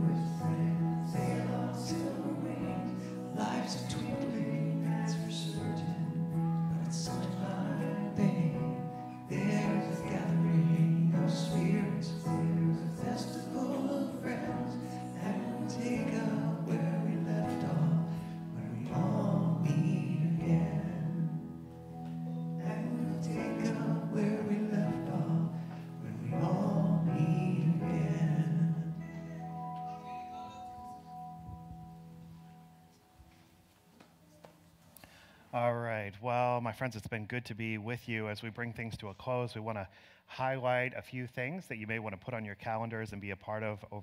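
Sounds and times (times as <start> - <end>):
man singing: 0.0 - 21.3, 22.6 - 30.9
electronic keyboard chords: 0.0 - 33.3.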